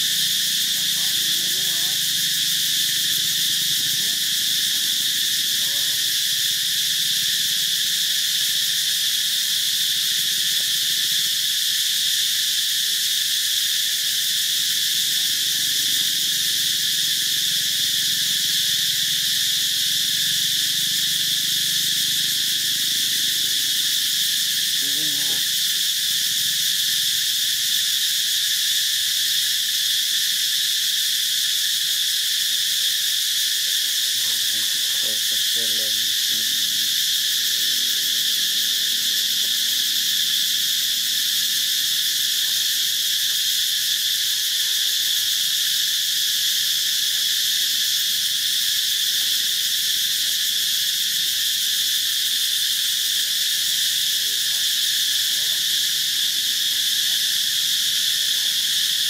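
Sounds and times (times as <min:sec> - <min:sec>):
insect chorus buzzing: 0:00.0 - 0:59.0.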